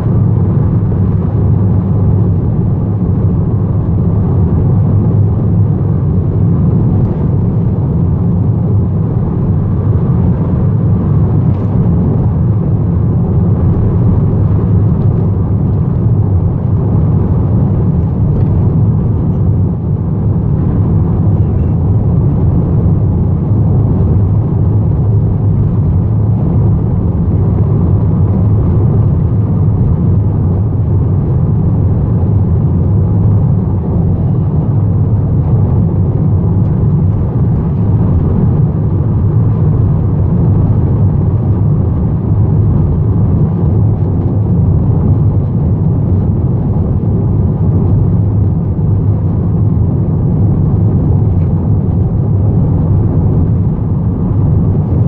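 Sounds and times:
car cabin road and engine rumble: 0.0s - 55.0s.

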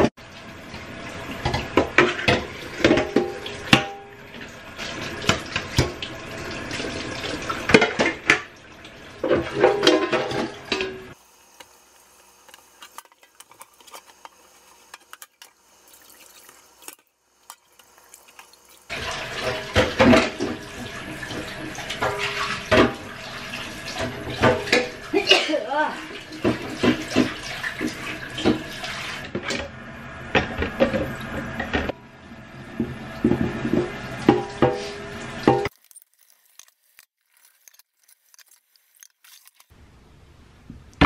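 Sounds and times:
dishes clattering and clinking: 1.4s - 4.2s, 7.7s - 8.5s, 9.2s - 11.2s, 18.9s - 23.1s, 24.0s - 25.0s.

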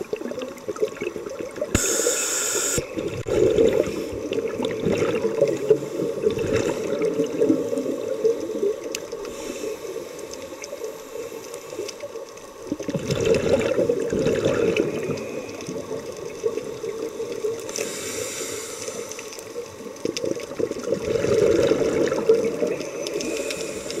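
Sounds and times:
exhaled bubbles gurgling: 0.0s - 11.0s, 11.7s - 24.0s
regulator hiss: 1.7s - 3.0s, 17.7s - 19.2s, 23.2s - 24.0s
regulator breathing underwater: 1.7s - 4.3s, 17.7s - 19.2s, 23.2s - 24.0s.

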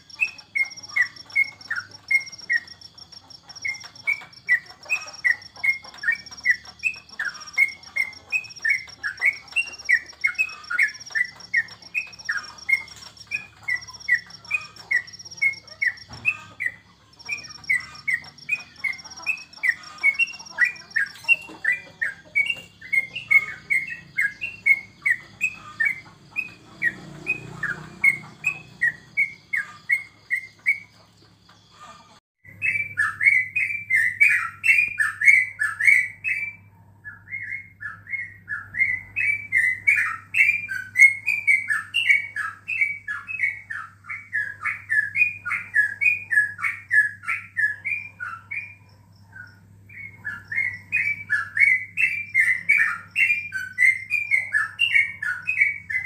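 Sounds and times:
bird chirping song: 0.0s - 56.0s.

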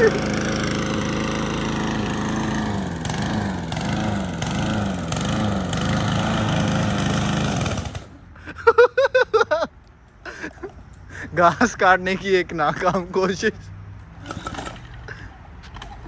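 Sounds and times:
lawn mower engine running: 0.0s - 8.5s, 14.0s - 16.0s
person's voice: 11.3s - 13.7s.

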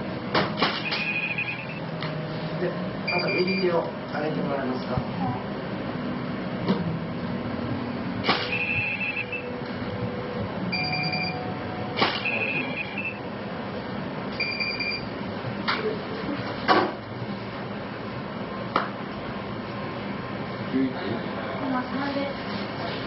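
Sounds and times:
short high electronic beeps: 0.9s - 1.8s, 8.4s - 9.5s, 12.2s - 13.2s.

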